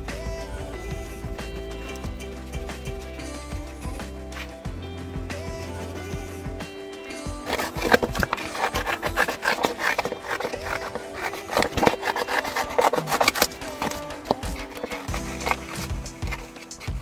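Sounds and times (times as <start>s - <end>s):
paper rustling: 7.4s - 17.0s
scissors snipping paper: 7.4s - 17.0s.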